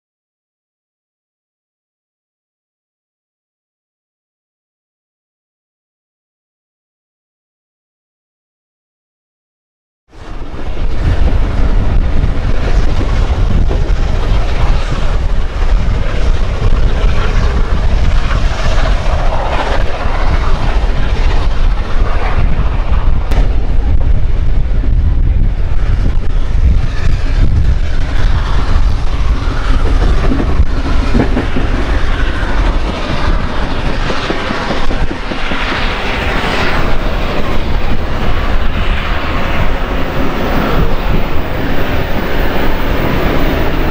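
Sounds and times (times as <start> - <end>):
train wheels clickety-clack on rails: 10.2 - 43.9.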